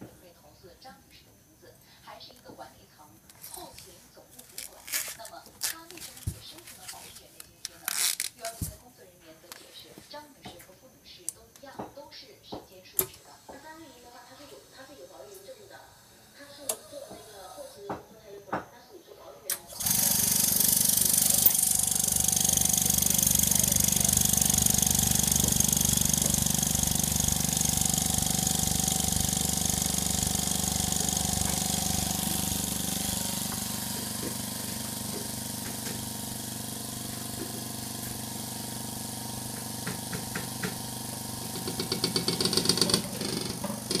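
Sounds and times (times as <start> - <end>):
vacuum pump humming and hissing: 3.3 - 18.8, 19.4 - 44.0
fast pulsing rattle: 20.4 - 33.4.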